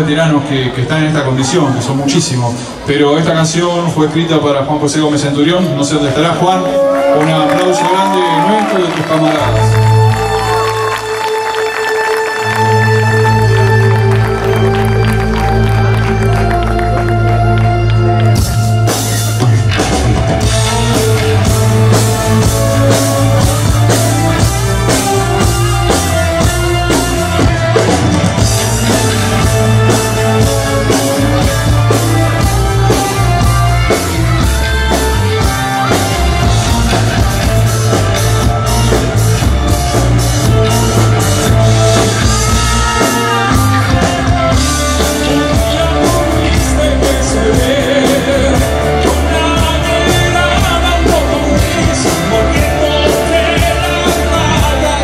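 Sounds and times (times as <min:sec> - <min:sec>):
bass guitar: 0:00.0 - 0:55.0
electric guitars: 0:00.0 - 0:55.0
drum kit beat: 0:12.6 - 0:55.0
person singing: 0:28.4 - 0:55.0.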